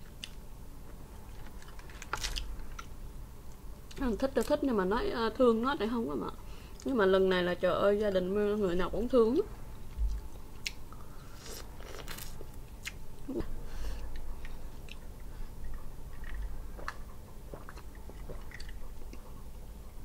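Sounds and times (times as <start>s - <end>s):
chewing with small crunches: 9.8s - 20.0s.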